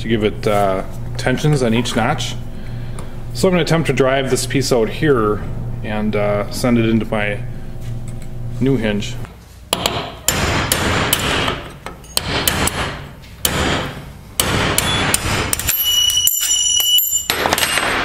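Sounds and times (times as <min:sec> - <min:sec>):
hammer striking metal: 0:09.7 - 0:18.0.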